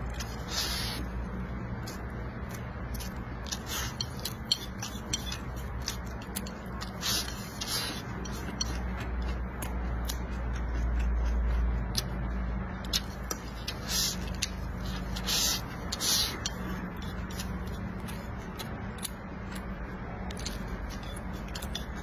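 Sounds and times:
slurping: 0.0 - 1.2, 3.0 - 8.8, 13.0 - 17.8
chewing with wet lip smacks: 0.0 - 22.0
chopsticks clicking on a plate: 3.0 - 11.1.

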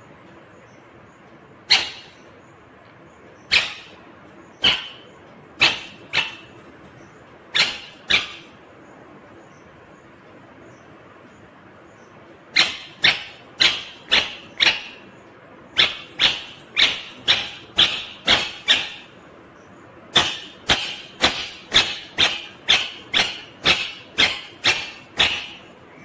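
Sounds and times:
parakeet screeching: 1.7 - 2.2, 3.5 - 4.0, 4.6 - 6.7, 7.5 - 8.6, 12.6 - 15.1, 15.8 - 19.2, 20.2 - 25.8.

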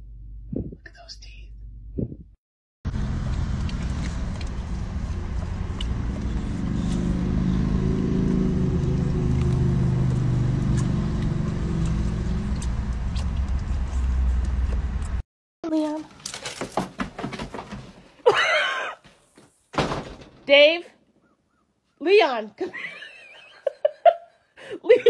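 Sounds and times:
car engine rumble inside cabin: 2.9 - 15.2.

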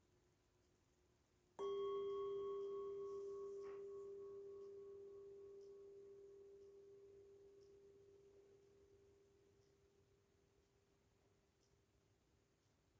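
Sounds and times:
metal singing bowl ringing: 1.6 - 10.0.

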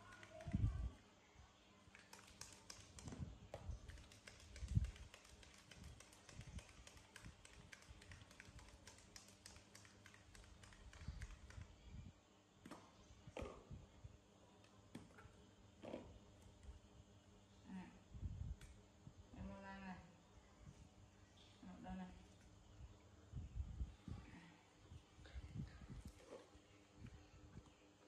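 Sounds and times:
plastic bottles clicking and tapping: 1.9 - 11.6.

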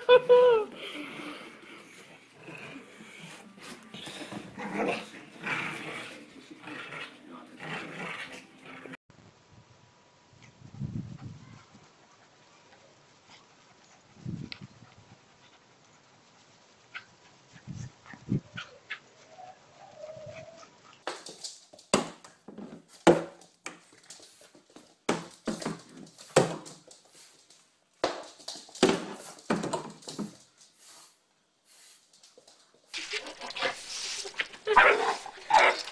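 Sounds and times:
dog barking: 34.8 - 35.8.

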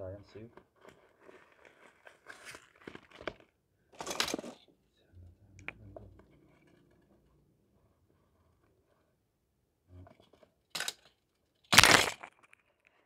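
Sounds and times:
handling rustling: 0.5 - 4.6.

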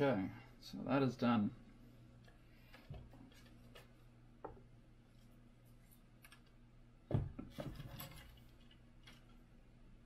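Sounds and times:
small knocks and rattles: 6.2 - 9.5.

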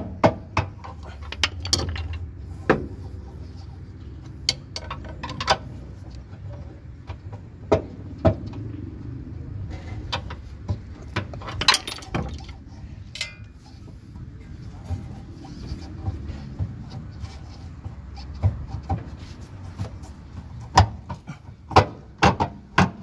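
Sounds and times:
pry bar clinking on metal: 11.5 - 12.5, 13.1 - 13.6.

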